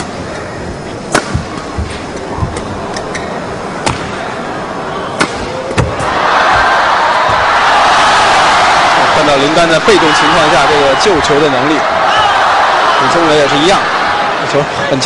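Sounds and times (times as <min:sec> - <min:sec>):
arena crowd background noise: 0:00.0 - 0:15.0
crowd cheering: 0:04.2 - 0:15.0
rackets striking shuttlecock: 0:05.2 - 0:06.1.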